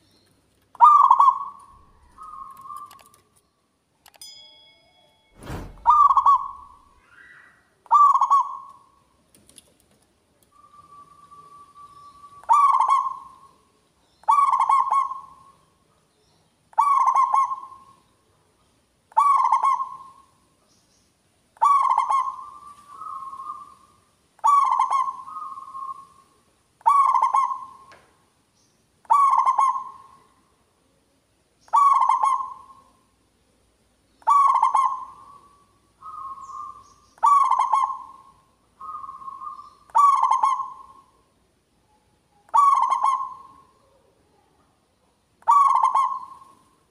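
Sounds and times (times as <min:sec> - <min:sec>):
dove cooing: 0:00.8 - 0:03.2, 0:05.8 - 0:07.0, 0:07.9 - 0:08.9, 0:10.7 - 0:13.6, 0:14.2 - 0:15.6, 0:16.7 - 0:18.0, 0:19.1 - 0:20.3, 0:21.6 - 0:27.9, 0:29.1 - 0:30.3, 0:31.7 - 0:32.9, 0:34.2 - 0:41.2, 0:42.5 - 0:44.2, 0:45.4 - 0:46.8.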